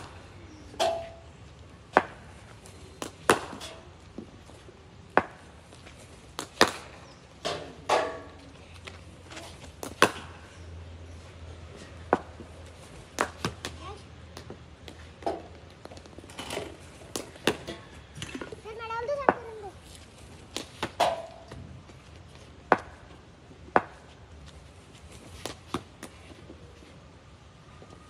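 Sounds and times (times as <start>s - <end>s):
cricket balls striking bats: 0.0s - 4.4s, 5.0s - 8.5s, 9.4s - 10.6s, 12.0s - 19.7s, 20.4s - 21.6s, 22.6s - 24.2s.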